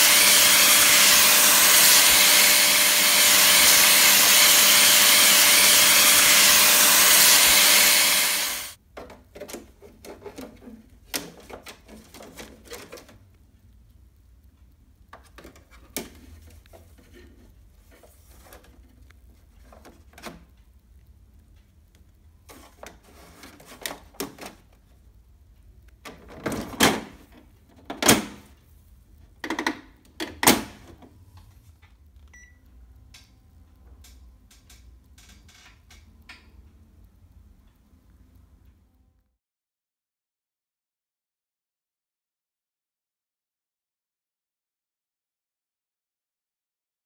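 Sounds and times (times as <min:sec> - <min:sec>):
plastic filters clicking and rattling: 0:08.9 - 0:13.2, 0:22.5 - 0:24.8, 0:26.0 - 0:28.4
short beep: 0:32.3 - 0:32.6.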